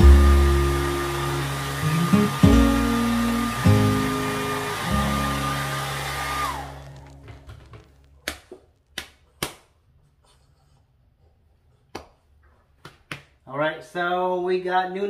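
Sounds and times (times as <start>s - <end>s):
hair dryer whining: 0.0s - 7.8s.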